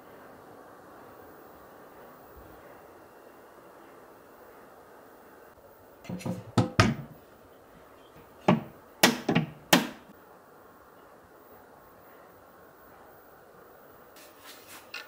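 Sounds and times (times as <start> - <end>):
wooden cabinet doors knocking: 6.1 - 7.2, 8.4 - 10.0.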